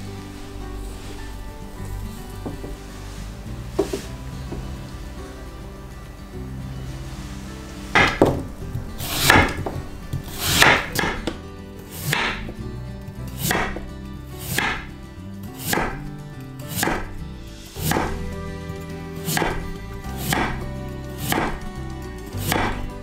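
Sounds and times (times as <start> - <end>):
knife slicing radish on board: 10.3 - 11.2, 12.0 - 12.5, 14.4 - 14.8, 15.6 - 16.0, 19.3 - 19.6.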